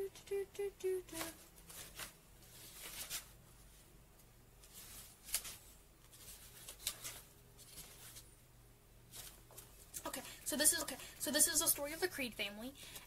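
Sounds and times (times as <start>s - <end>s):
book pages riffling: 1.2s - 3.4s, 4.6s - 8.3s, 9.1s - 9.8s.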